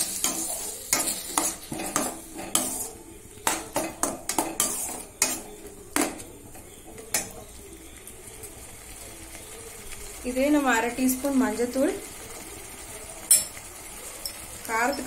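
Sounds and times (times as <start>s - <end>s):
metal spoon scraping a steel pan: 0.0s - 5.7s.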